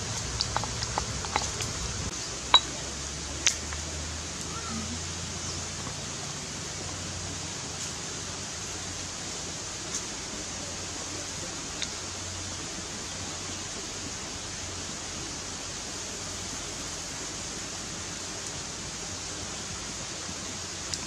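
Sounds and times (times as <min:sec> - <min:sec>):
wood fire crackling: 0:00.0 - 0:02.7
steady hiss: 0:00.0 - 0:21.0.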